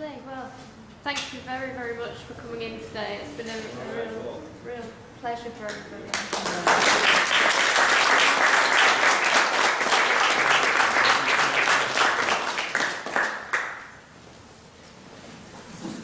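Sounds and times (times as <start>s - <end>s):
audience applauding: 6.1s - 14.0s.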